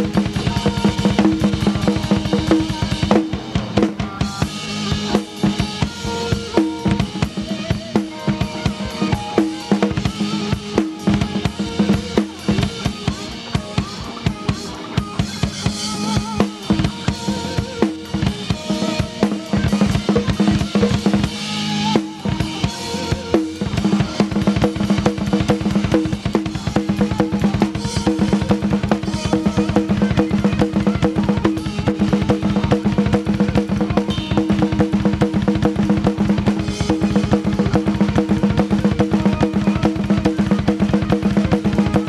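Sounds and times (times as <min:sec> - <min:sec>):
drum kit playing fast: 0:00.0 - 0:42.0
electric guitar: 0:00.0 - 0:42.0.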